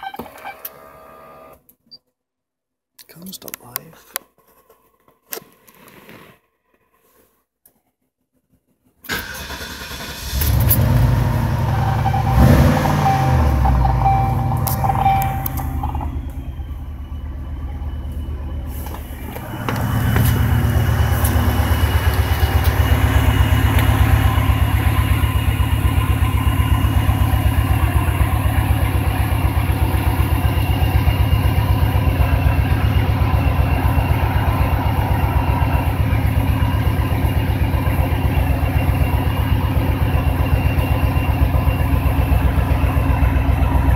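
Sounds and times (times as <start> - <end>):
car engine idling: 9.1 - 43.9
steady high tone: 11.2 - 43.9.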